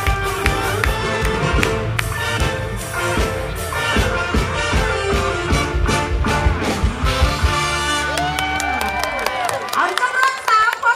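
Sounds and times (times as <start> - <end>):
steady drum beat: 0.0 - 8.0
live band music: 0.0 - 9.2.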